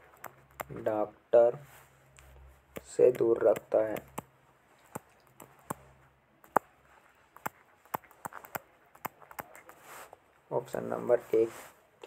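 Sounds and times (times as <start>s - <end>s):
stylus tapping on touchscreen: 2.2s - 5.8s, 6.4s - 6.7s.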